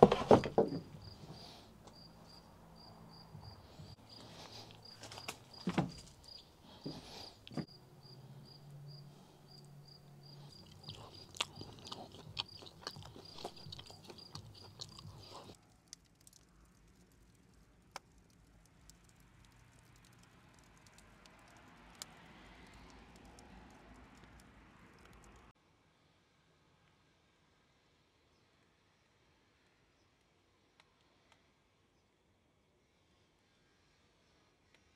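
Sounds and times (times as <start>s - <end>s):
fire crackles: 3.6s - 7.6s, 10.3s - 25.5s
wood fire burning: 3.6s - 7.6s, 10.4s - 25.5s
chewing and crunching: 3.8s - 7.6s, 10.2s - 25.5s.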